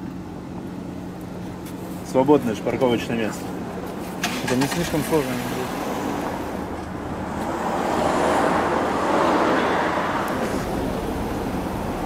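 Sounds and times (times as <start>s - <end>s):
street traffic noise: 0.0s - 12.0s
car passing: 4.2s - 12.0s.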